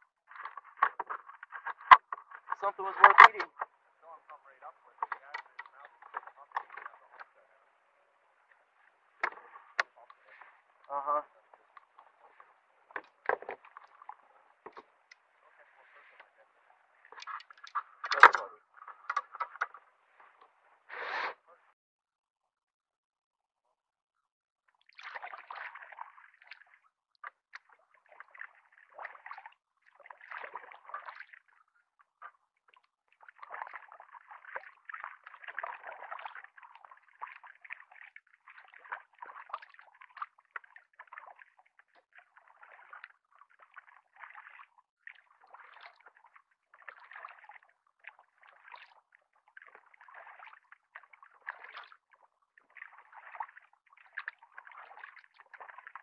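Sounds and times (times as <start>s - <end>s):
paddle splashing in water: 0.0s - 21.6s, 24.8s - 56.0s
water dripping off paddle: 0.3s - 7.6s, 8.5s - 20.5s, 24.8s - 56.0s.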